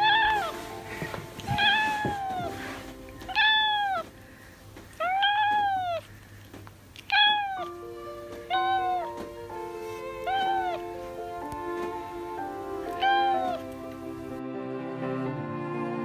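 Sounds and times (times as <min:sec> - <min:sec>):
cat meowing: 0:00.0 - 0:00.7, 0:01.4 - 0:04.2, 0:04.9 - 0:06.2, 0:07.0 - 0:14.3.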